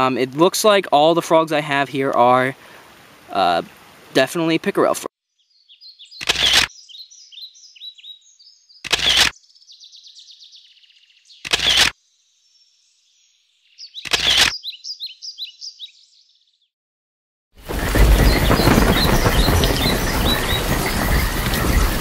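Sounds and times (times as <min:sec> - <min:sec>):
small birds chirping: 0:05.2 - 0:16.7, 0:17.7 - 0:22.0.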